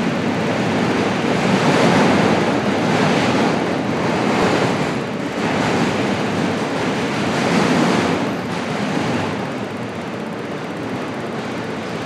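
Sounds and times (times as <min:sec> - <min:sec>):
subway train rushing: 0:00.0 - 0:12.0.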